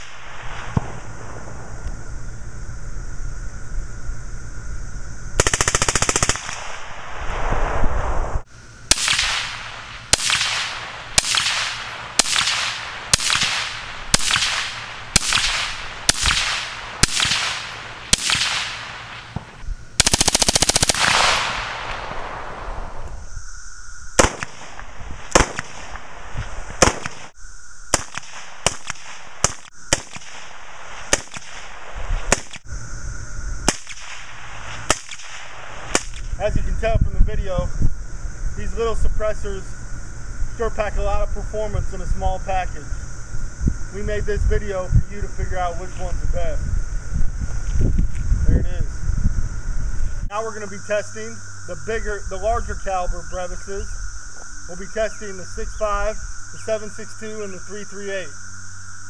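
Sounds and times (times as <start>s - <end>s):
suppressed rifle single shots: 0.0s - 1.1s, 8.9s - 22.6s, 24.2s - 26.1s, 26.8s - 27.3s, 27.9s - 32.6s, 33.7s - 36.3s
full-auto rifle burst: 5.4s - 6.9s, 8.9s - 22.6s, 24.2s - 26.0s, 26.8s - 27.3s.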